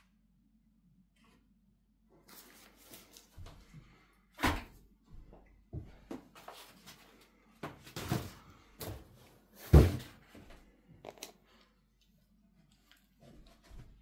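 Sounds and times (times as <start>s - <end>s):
packing paper rustling: 2.2s - 3.4s.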